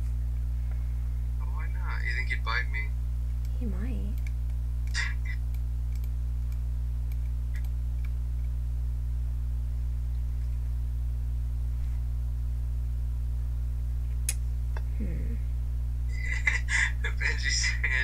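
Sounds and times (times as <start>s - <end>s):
low electrical hum: 0.0s - 18.0s
computer mouse clicks: 4.2s - 4.6s, 5.5s - 8.5s.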